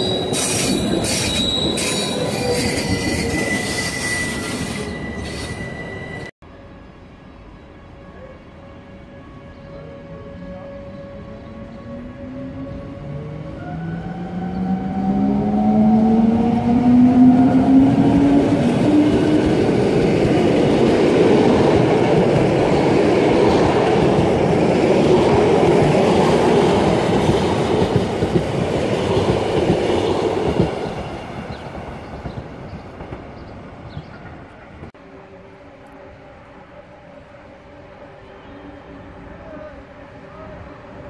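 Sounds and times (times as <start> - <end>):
electric locomotive whine: 0.0 - 41.0
train wheels clattering on rails: 25.3 - 34.9.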